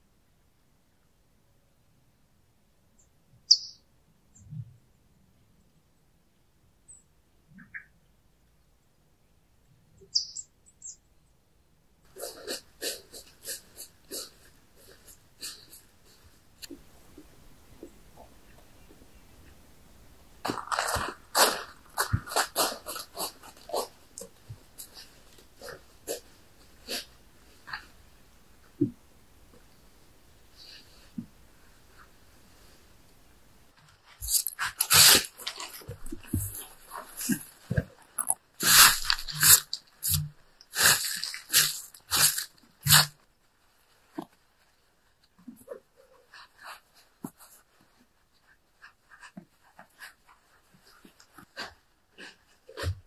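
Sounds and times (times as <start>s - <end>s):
footsteps crunching dry leaves: 38.6s - 40.2s, 40.8s - 43.0s.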